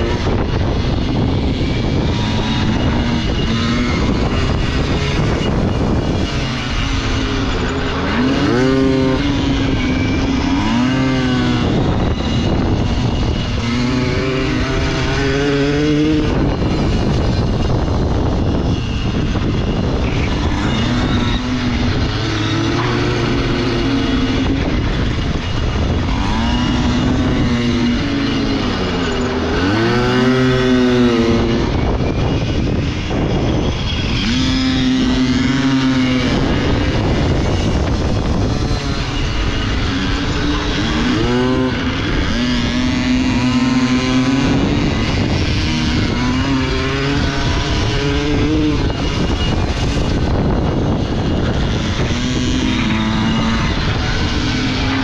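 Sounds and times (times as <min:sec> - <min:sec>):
pit bike engine revving: 0:00.0 - 0:55.0
wind rushing over microphone: 0:00.0 - 0:55.0.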